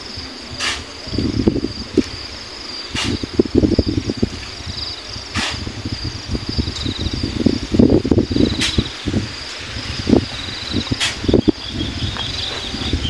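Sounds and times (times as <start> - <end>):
insects chirping: 0.0 - 13.0
shovel scraping into sand: 0.6 - 0.9, 2.9 - 3.2, 5.3 - 5.7, 10.9 - 11.2.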